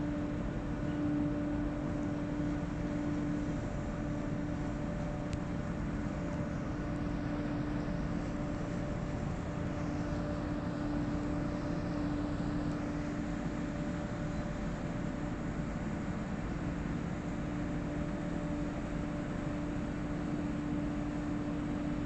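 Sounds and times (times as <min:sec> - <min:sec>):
boat diesel engine drone: 0:00.0 - 0:22.0.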